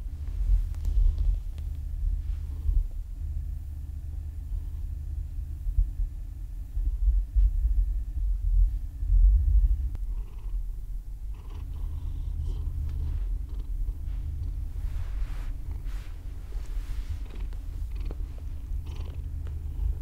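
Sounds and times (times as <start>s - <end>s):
soft rustling: 0.0s - 2.9s, 12.3s - 20.0s
cat purring: 9.8s - 20.0s.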